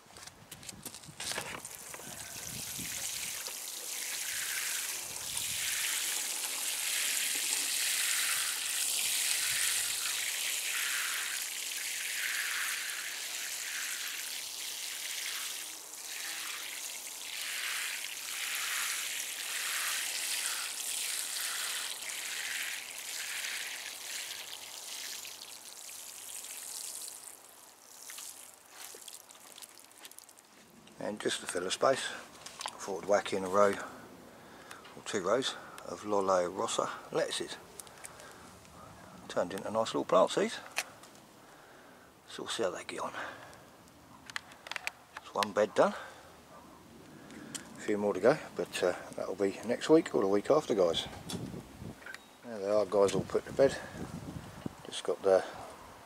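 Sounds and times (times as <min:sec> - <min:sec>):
watering can spraying onto compost: 0:01.4 - 0:30.6.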